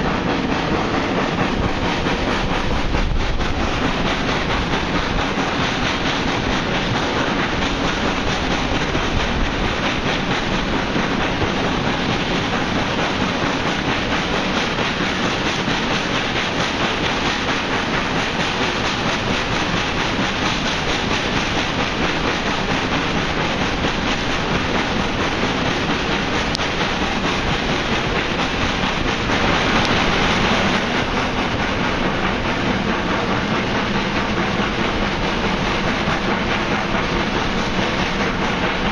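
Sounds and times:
hissy rush: 0:00.0 - 0:38.9
steam locomotive exhaust: 0:00.0 - 0:38.9.

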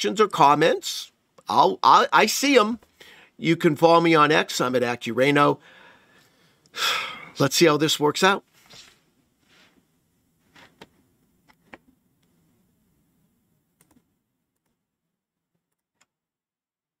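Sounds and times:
computer keys clicking: 0:13.8 - 0:14.0.

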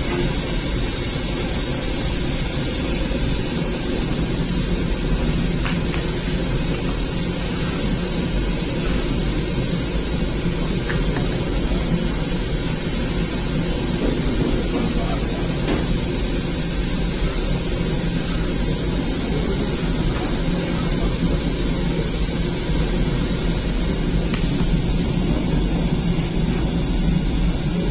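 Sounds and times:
bread oven machinery running: 0:00.0 - 0:27.9.

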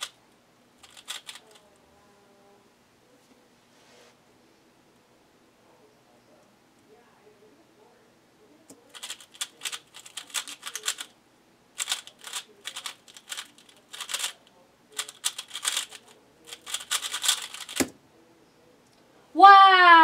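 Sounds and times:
puzzle cube clacking: 0:00.8 - 0:01.6, 0:08.9 - 0:11.1, 0:11.8 - 0:18.0.

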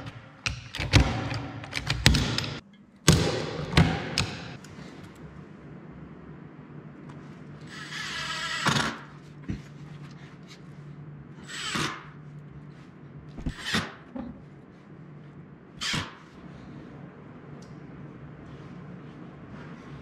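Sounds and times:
cordless drill whirring: 0:07.7 - 0:09.0.

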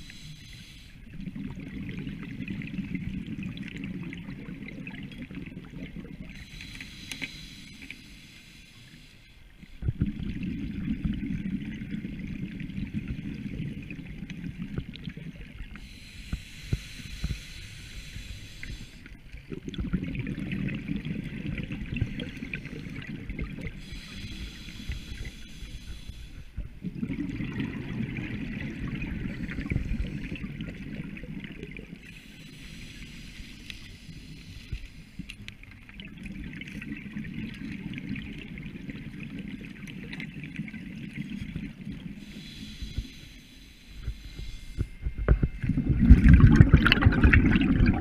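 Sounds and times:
regulator hissing inhale: 0:00.0 - 0:01.1, 0:06.3 - 0:09.8, 0:15.7 - 0:19.2, 0:22.0 - 0:26.6, 0:29.1 - 0:30.5, 0:32.0 - 0:35.5, 0:42.0 - 0:45.3
exhaled bubbles underwater: 0:01.0 - 0:06.7, 0:09.8 - 0:16.1, 0:17.1 - 0:32.2, 0:35.6 - 0:43.3, 0:44.0 - 0:48.0.

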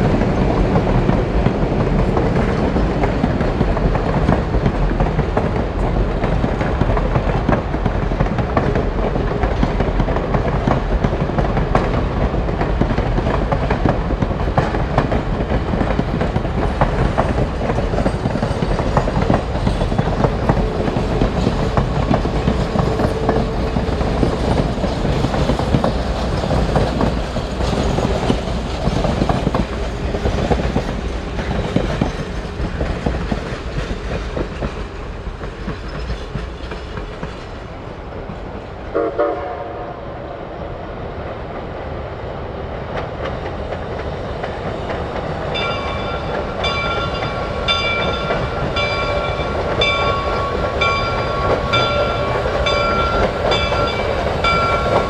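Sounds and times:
train wheels clicking over rail joints: 0:00.0 - 0:39.4, 0:42.8 - 0:55.0
train whistle toot: 0:38.9 - 0:40.0.

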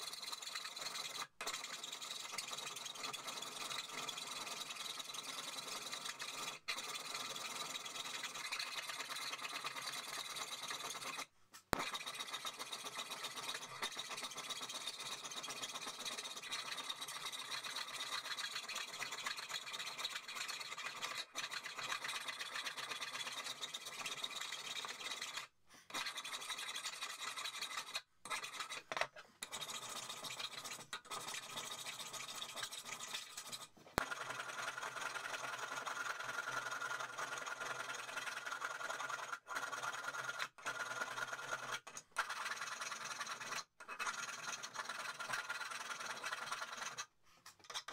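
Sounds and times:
file rasping on metal: 0:20.2 - 0:31.6.

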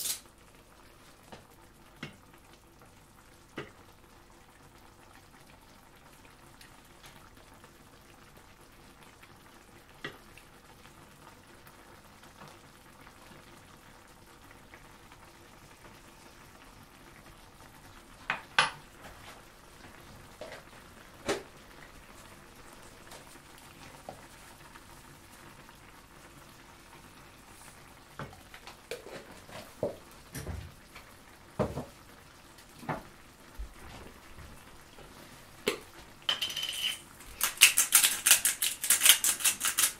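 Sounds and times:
sauce sizzling in a frying pan: 0:00.0 - 0:37.8
wooden spatula knocking on pan: 0:18.3 - 0:18.8, 0:31.6 - 0:31.9.

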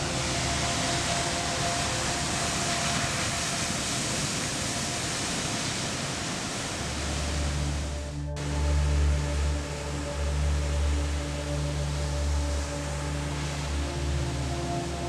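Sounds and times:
ocean surf breaking: 0:00.0 - 0:08.0
ambient music tones: 0:00.0 - 0:15.0
low droning music tones: 0:00.0 - 0:15.0.

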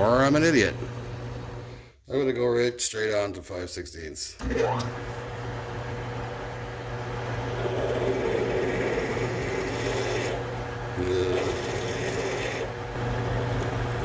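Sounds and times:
lathe motor hum: 0:04.4 - 0:14.0
drill grinding into metal: 0:07.4 - 0:12.8.

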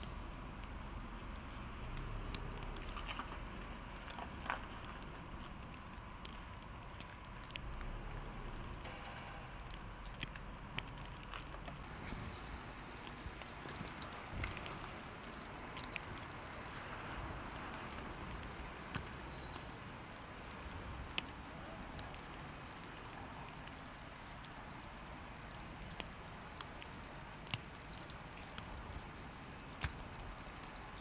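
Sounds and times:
light clicks and taps: 0:00.0 - 0:12.4
low rumble and hiss: 0:00.0 - 0:31.0.

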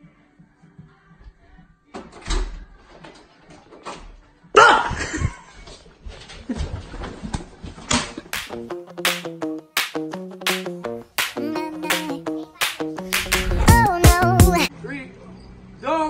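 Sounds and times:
music with steady beat: 0:08.4 - 0:14.7.

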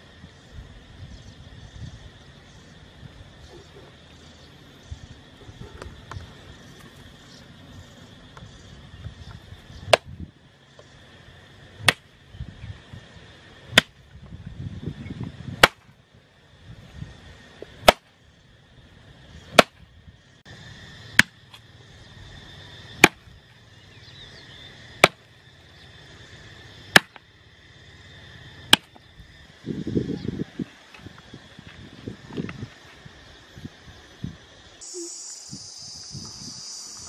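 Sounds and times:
bamboo pole striking ground: 0:09.8 - 0:10.2, 0:11.8 - 0:12.1, 0:13.7 - 0:14.0, 0:15.6 - 0:15.9, 0:17.8 - 0:18.1, 0:19.5 - 0:19.8, 0:21.2 - 0:21.4, 0:23.0 - 0:23.2, 0:25.0 - 0:25.2, 0:26.9 - 0:27.2, 0:28.7 - 0:29.0.

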